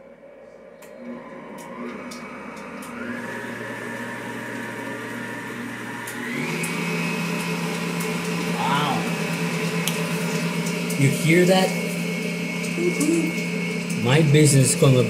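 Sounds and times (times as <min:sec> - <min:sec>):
stand mixer motor whine: 0:00.2 - 0:15.0.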